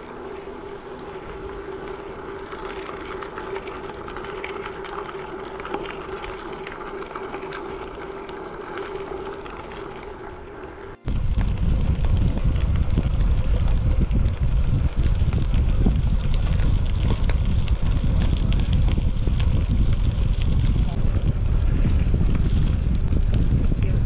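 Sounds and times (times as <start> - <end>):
bicycle tyres on dirt: 0.0 - 24.0
grit patter: 0.0 - 24.0
low hum: 0.0 - 24.0
wind buffeting microphone: 8.2 - 24.0.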